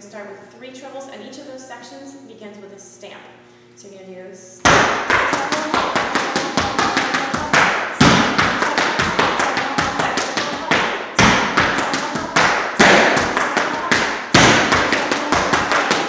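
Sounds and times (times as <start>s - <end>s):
hard shoes tapping on floor: 4.7s - 16.0s
shoe stamp: 11.2s - 15.3s.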